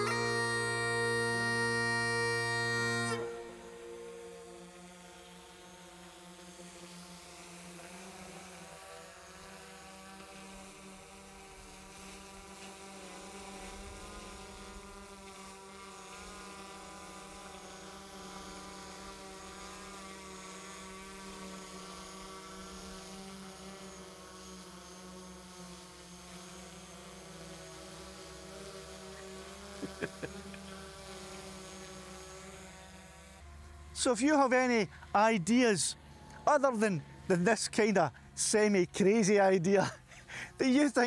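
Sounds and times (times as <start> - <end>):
drone propeller whine: 0.0 - 12.0, 15.8 - 41.0.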